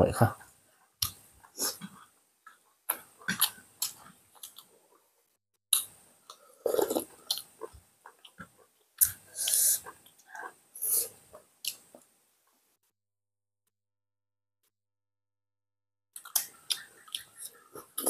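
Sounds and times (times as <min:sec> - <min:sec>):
chewing and mouth noises: 0:16.2 - 0:18.0.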